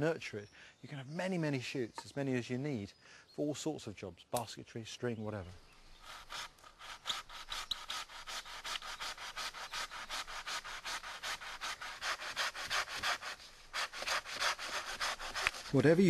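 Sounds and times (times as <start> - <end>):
hand saw cutting wood: 6.0 - 16.0.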